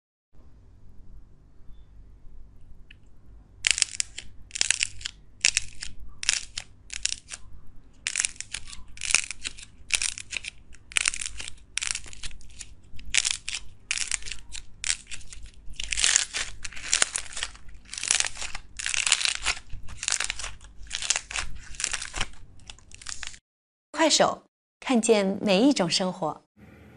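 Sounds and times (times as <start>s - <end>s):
slime balls crackling when squeezed: 3.6s - 7.4s, 8.0s - 23.4s.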